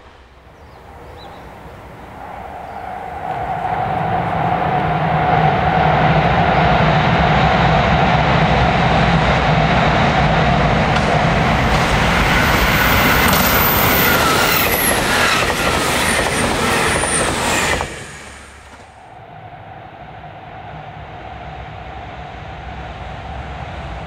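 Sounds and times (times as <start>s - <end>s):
diesel train passing at speed: 0.0s - 24.0s
rail-joint clatter: 10.9s - 19.0s.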